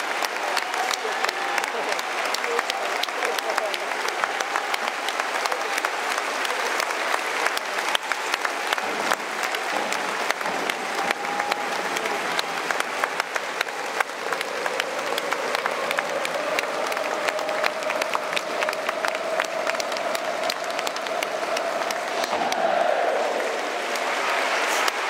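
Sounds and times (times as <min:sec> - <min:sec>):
crowd applauding: 0:00.0 - 0:25.0.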